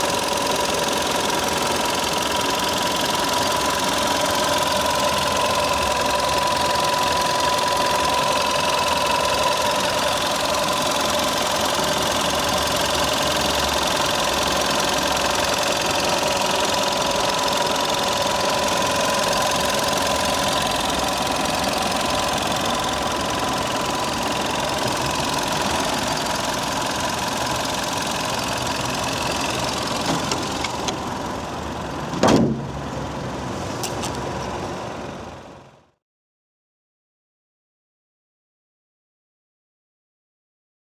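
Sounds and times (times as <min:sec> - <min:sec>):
car engine idling: 0:00.0 - 0:35.9
car bonnet shutting thud: 0:32.1 - 0:32.8.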